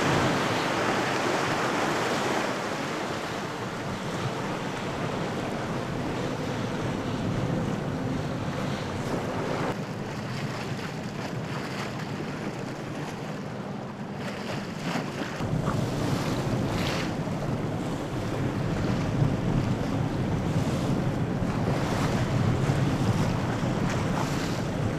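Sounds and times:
choppy sea waves: 0.0s - 24.9s
wind buffeting microphone: 0.0s - 24.9s.

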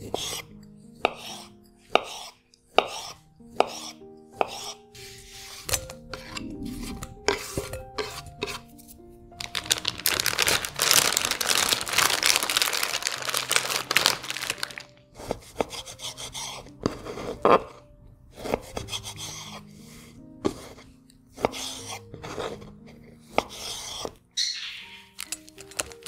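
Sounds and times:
background music: 0.0s - 26.0s
knife cutting onto wooden board: 1.0s - 4.8s
plastic bag crinkling: 9.3s - 15.1s, 25.2s - 26.0s.

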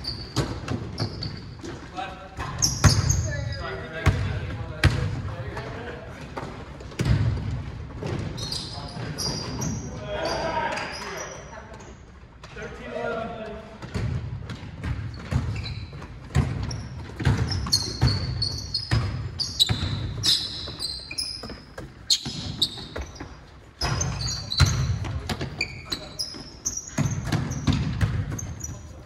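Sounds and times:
sneakers squeaking: 0.0s - 12.1s, 13.8s - 29.0s
basketball bouncing on hardwood floor: 14.0s - 20.8s, 26.9s - 28.6s.

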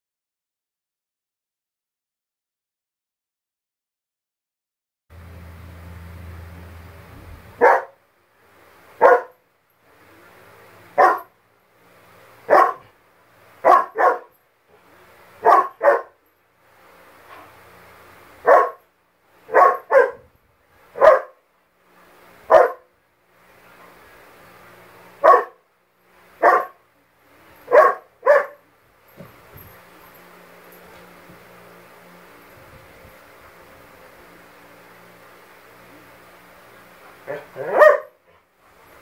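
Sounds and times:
dog barking: 7.6s - 8.0s, 9.0s - 9.4s, 11.0s - 11.3s, 12.5s - 12.9s, 13.6s - 14.4s, 15.4s - 16.2s, 18.4s - 18.8s, 19.5s - 20.3s, 21.0s - 21.4s, 22.5s - 22.9s, 25.2s - 25.6s, 26.4s - 26.8s, 27.7s - 28.6s, 37.3s - 38.2s.

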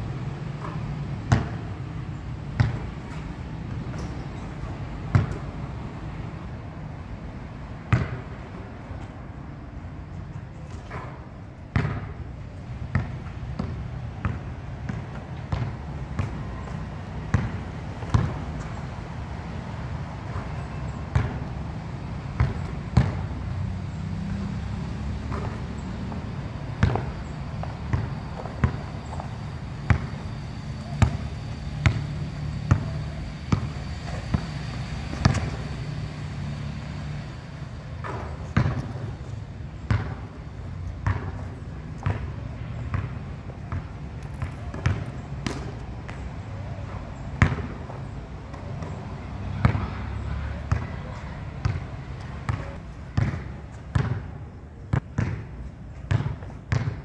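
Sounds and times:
basketball bouncing on hard court: 0.6s - 1.6s, 2.6s - 3.3s, 5.1s - 5.4s, 7.9s - 8.2s, 11.7s - 12.1s, 12.9s - 18.4s, 21.1s - 21.5s, 22.4s - 23.2s, 26.8s - 35.8s, 38.0s - 39.1s, 39.9s - 40.2s, 41.0s - 43.1s, 43.7s - 46.2s, 47.4s - 47.7s, 50.7s - 50.9s, 51.6s - 51.8s, 52.5s - 54.2s, 54.9s - 57.0s
basketball striking backboard and rim: 5.1s - 5.4s, 7.9s - 8.2s, 11.7s - 12.1s, 17.3s - 18.4s, 21.1s - 21.4s, 22.4s - 23.2s, 26.8s - 29.2s, 30.8s - 31.2s, 31.8s - 34.5s, 35.1s - 35.6s, 38.0s - 39.0s, 39.9s - 40.2s, 41.0s - 41.4s, 44.7s - 45.7s, 53.2s - 54.2s, 54.9s - 55.5s, 56.1s - 57.0s
steady low hum: 12.4s - 50.0s.

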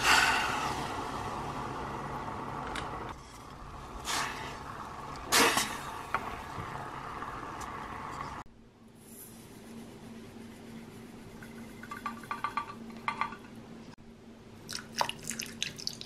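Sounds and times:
spoon knocking and scraping pot: 11.8s - 13.5s.

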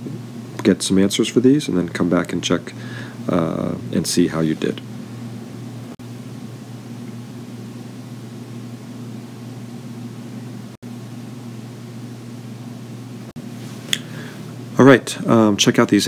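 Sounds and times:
low hum with hiss: 0.0s - 16.0s.

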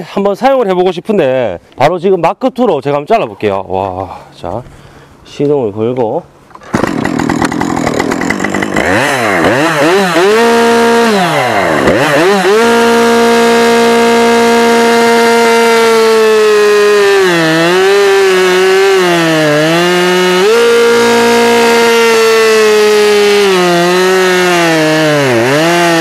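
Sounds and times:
chainsaw cutting log: 6.5s - 26.0s
chainsaw revving: 6.6s - 26.0s.

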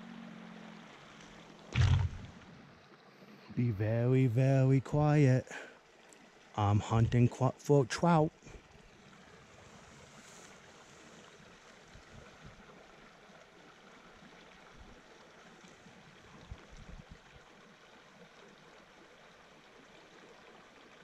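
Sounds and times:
creek running over cobbles: 0.0s - 21.0s
soft low bumps: 1.8s - 2.5s.

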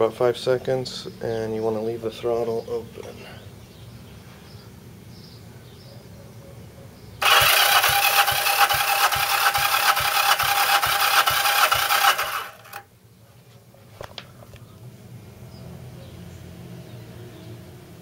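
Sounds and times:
starter motor cranking engine: 7.2s - 12.9s.

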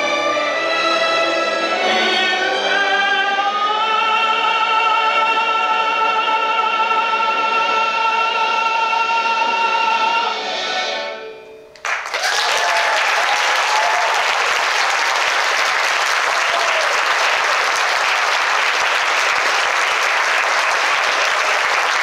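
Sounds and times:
audience applause: 11.8s - 22.0s.

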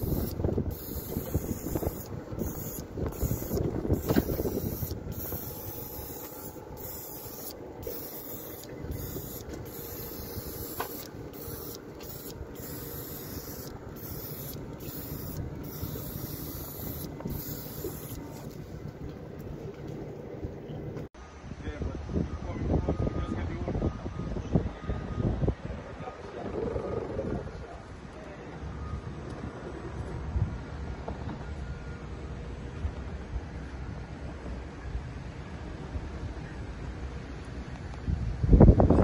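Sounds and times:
airbrush spraying hiss: 0.0s - 18.7s.

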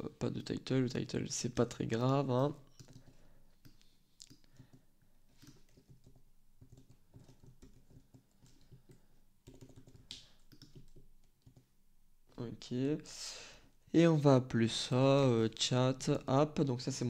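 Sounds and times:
typing on computer keyboard: 2.7s - 11.7s.

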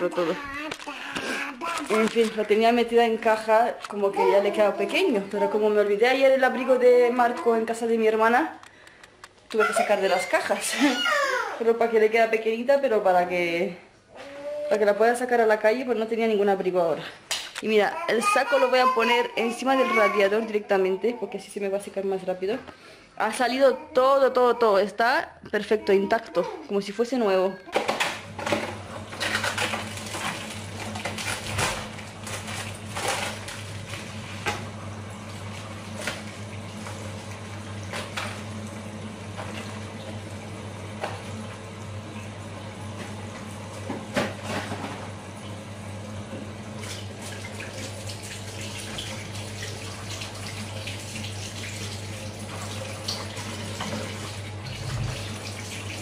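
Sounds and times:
kitchen tap running into sink: 46.3s - 56.0s.

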